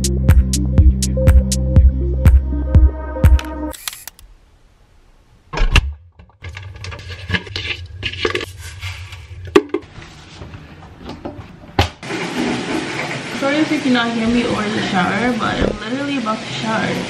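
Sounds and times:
sharp click: 3.4 - 4.3.

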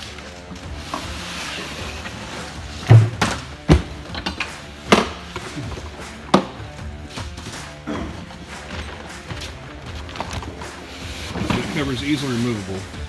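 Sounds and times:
background music: 0.0 - 13.0
fridge-freezer thumps and knocks: 2.8 - 4.0.

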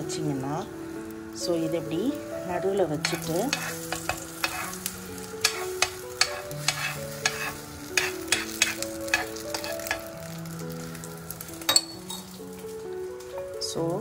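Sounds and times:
egg sizzling in a pan: 0.2 - 14.0
spoon scraping and tapping pan: 3.0 - 10.1.

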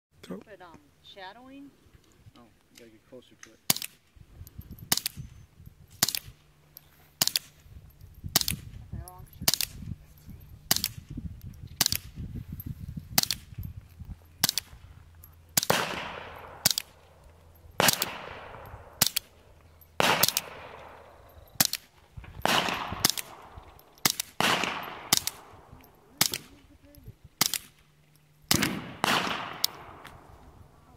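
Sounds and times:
suppressed rifle shots: 15.5 - 17.0, 17.8 - 19.4, 20.0 - 25.6, 27.4 - 27.8, 28.5 - 30.2.

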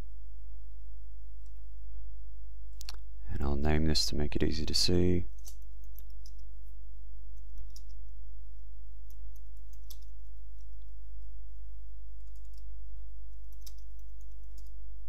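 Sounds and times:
steady low hum: 0.0 - 15.0
computer keyboard keys tapping: 12.2 - 12.7, 13.4 - 14.7.

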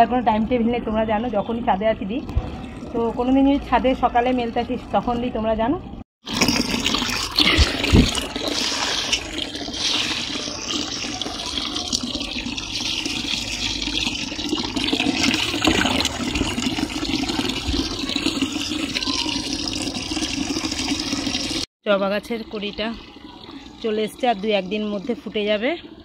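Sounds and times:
water pouring into plastic tub: 6.2 - 21.7, 22.3 - 26.0.

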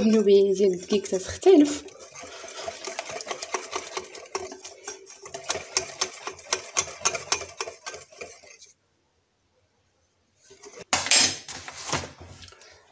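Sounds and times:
whisk clicking against glass bowl: 1.8 - 8.7.

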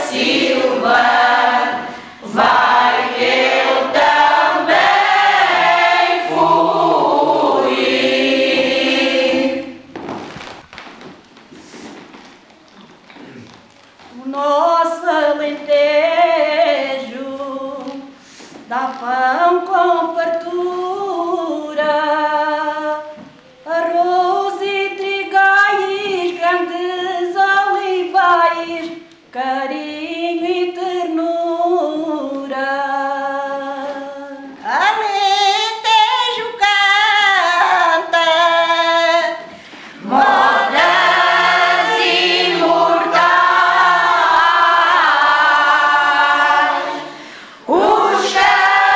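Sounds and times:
women's choir singing: 0.0 - 10.0, 14.1 - 18.1, 29.3 - 48.9.

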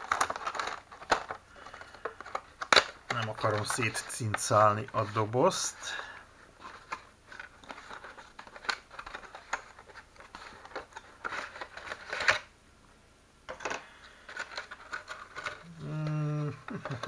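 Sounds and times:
cardboard box and plastic tray handled: 0.0 - 5.6.

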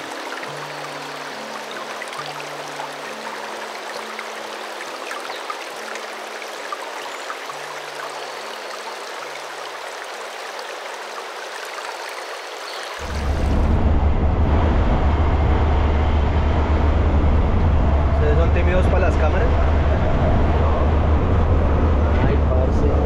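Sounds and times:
soft low background music: 0.0 - 9.6, 13.0 - 23.0
river water rushing: 0.0 - 13.9.

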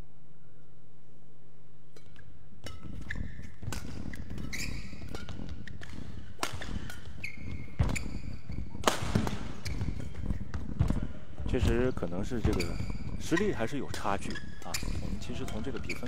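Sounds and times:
racket striking shuttlecock: 2.0 - 11.0
shoes squeaking on court floor: 2.0 - 16.0.

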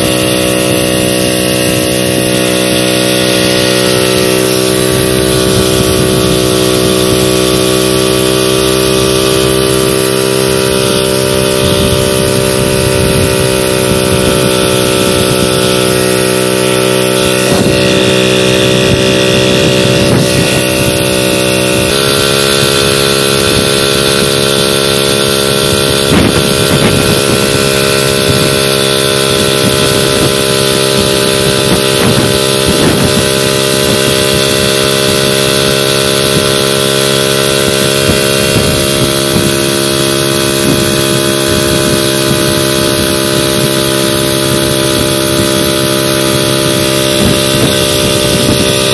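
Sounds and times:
moped engine running: 0.0 - 48.9.

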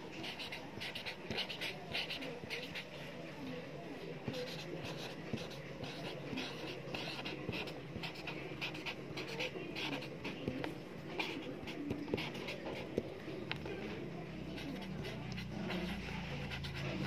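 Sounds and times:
marker pen scratching on paper: 0.0 - 3.1, 4.2 - 17.0.

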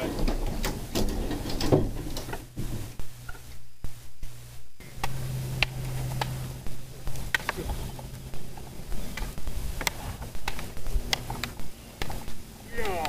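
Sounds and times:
steady low hum: 0.0 - 13.0
wooden sticks clacking: 7.0 - 13.0.

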